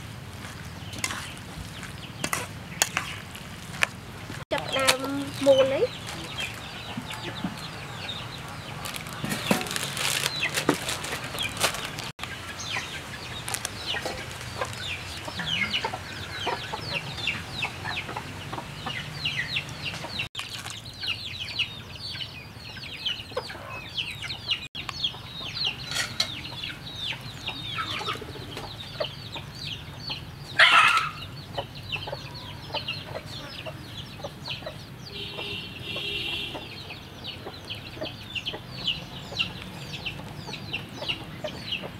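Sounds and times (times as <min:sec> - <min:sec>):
chickens clucking: 0:04.5 - 0:41.9.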